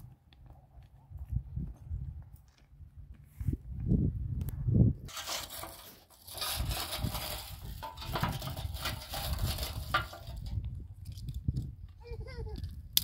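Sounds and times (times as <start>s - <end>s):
footsteps on loose stones: 5.1s - 11.7s.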